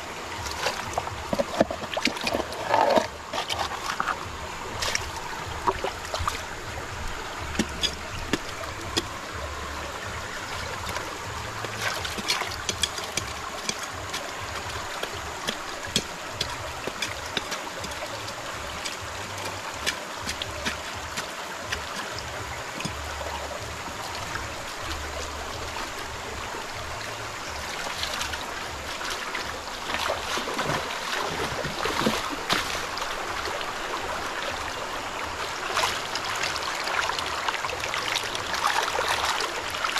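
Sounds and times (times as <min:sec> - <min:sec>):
stream running over rocks: 0:00.0 - 0:39.9
hands stirring gravel in water: 0:00.4 - 0:06.4, 0:10.6 - 0:23.8.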